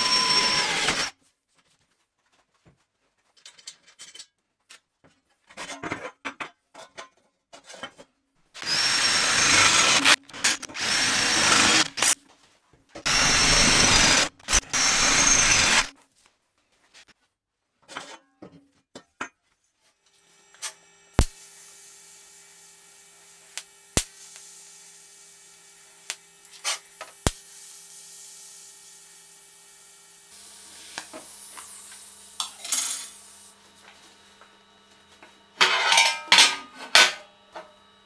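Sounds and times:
welding arc hum and hiss: 20.1 - 35.7
welding crackle: 21.2 - 32.1.

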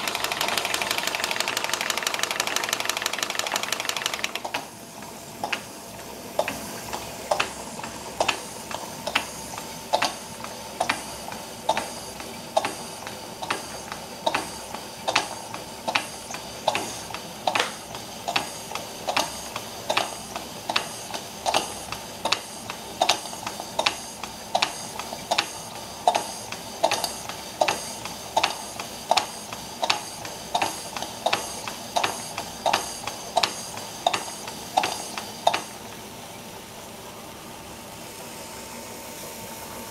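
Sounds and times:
steam engine ticking: 0.0 - 36.0
steam hissing: 5.3 - 35.9.

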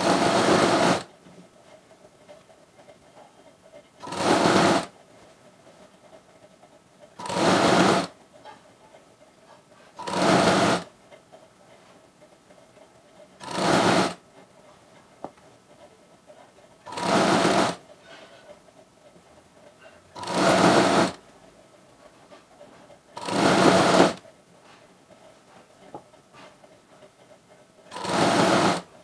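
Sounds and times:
sewing machine stitching: 0.0 - 1.1, 4.0 - 4.9, 7.2 - 8.2, 10.0 - 10.9, 13.4 - 14.2, 16.8 - 17.8, 20.1 - 21.2, 23.2 - 24.2, 27.9 - 29.0.

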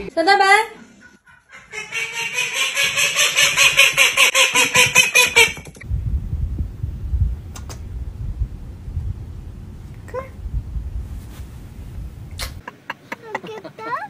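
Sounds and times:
animal harsh rapid calls: 1.2 - 5.8
low rumble: 5.8 - 12.6.

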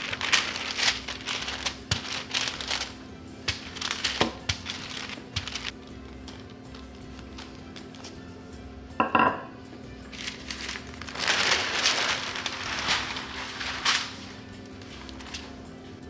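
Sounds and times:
paper rustling and crinkling: 0.0 - 8.2, 10.1 - 15.7.

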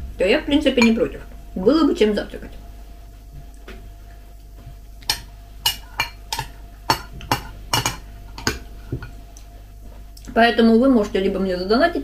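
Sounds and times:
spoon clinking against glass bowl: 5.1 - 8.6.

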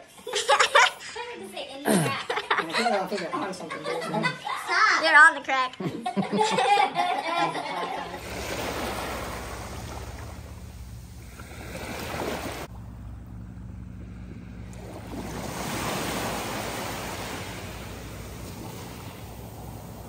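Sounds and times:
waves breaking on sandy beach: 8.0 - 12.8, 13.6 - 20.0.

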